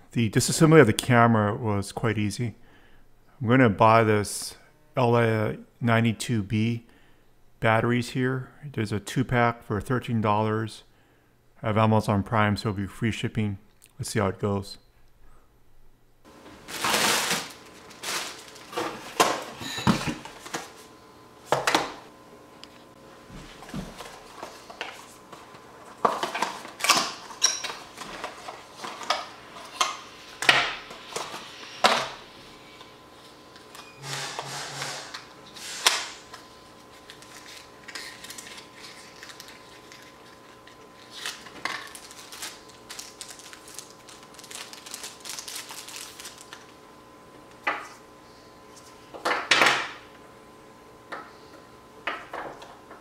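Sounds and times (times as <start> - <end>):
packaging clicks and rustles: 16.6 - 19.5, 36.3 - 46.7.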